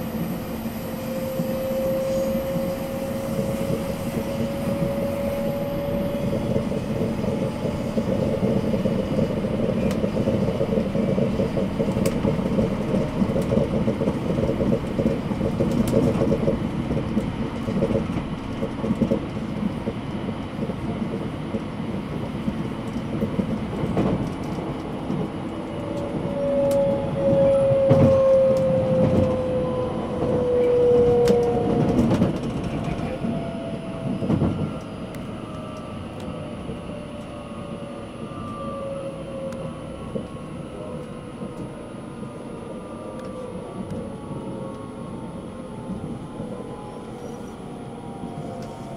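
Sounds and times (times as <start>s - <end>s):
train wheels rumbling on rail: 0.0s - 48.9s.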